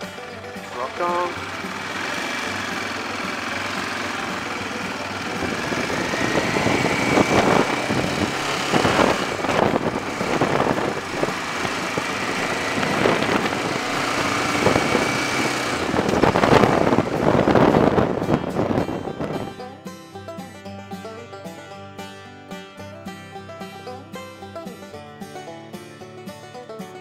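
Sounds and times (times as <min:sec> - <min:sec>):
motorcycle engine running: 0:00.0 - 0:19.8
wind noise gusts: 0:05.2 - 0:19.7.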